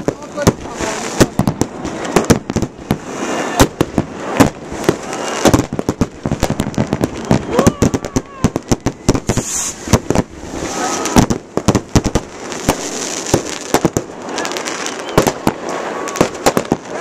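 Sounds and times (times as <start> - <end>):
fireworks bangs and crackling: 0.0 - 17.0.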